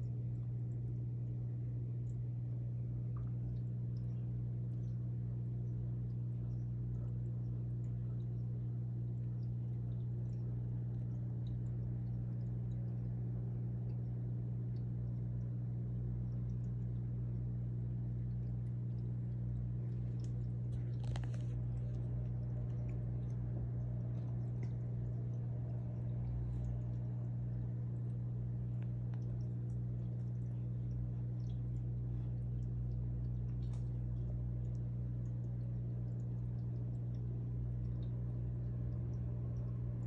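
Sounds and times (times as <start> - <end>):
aquarium pump humming: 0.0 - 40.0
faint clicks: 18.3 - 38.2.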